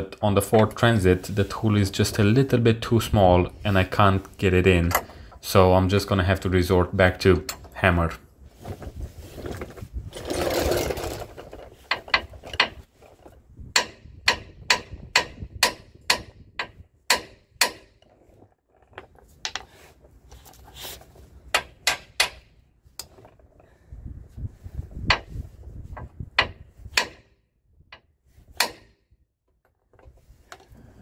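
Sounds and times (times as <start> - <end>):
hammer striking steel: 17.1 - 18.0.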